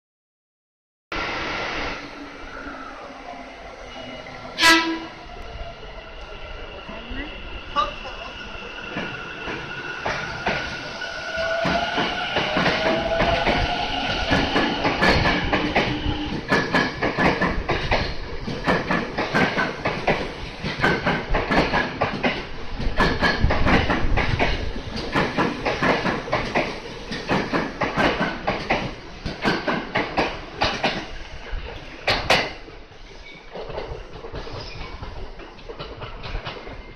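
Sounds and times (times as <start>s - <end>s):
train rumble: 1.2s - 36.9s
train wheels clattering: 11.6s - 31.2s, 33.2s - 36.9s.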